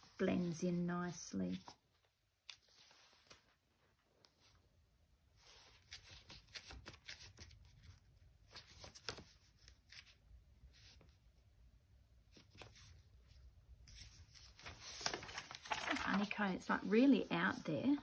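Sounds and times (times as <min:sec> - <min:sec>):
paper sheets rustling: 0:05.4 - 0:10.2, 0:13.8 - 0:18.0.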